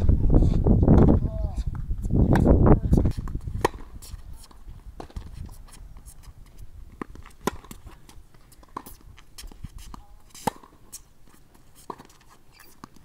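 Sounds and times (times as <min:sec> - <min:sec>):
tennis balls struck and bouncing: 0:02.2 - 0:05.4, 0:06.9 - 0:13.0.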